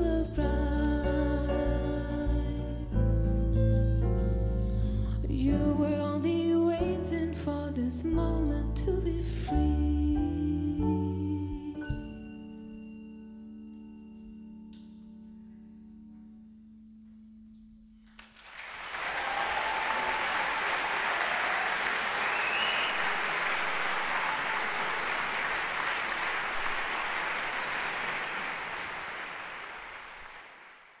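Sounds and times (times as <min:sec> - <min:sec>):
audience applause: 0:18.2 - 0:31.0.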